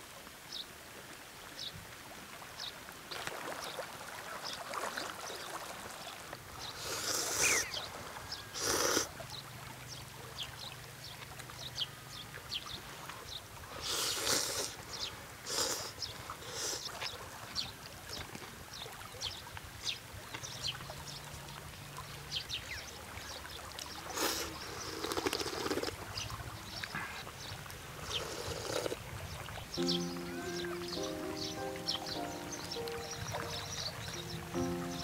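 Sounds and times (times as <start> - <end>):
river water running: 0.0 - 35.0
mouth clicks: 6.8 - 7.8, 8.6 - 9.1, 13.8 - 14.8, 15.5 - 16.9, 24.1 - 26.0, 28.0 - 29.0
slurping noodles: 6.8 - 7.8, 8.6 - 9.1, 13.8 - 14.8, 15.5 - 16.9, 24.1 - 26.0, 28.0 - 29.0
wet chewing: 13.8 - 14.8, 15.5 - 16.9, 24.2 - 26.0, 28.0 - 29.0.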